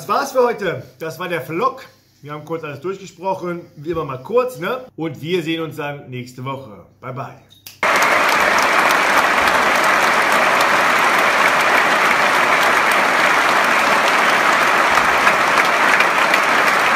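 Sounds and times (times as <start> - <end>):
audience applauding: 7.8 - 16.9.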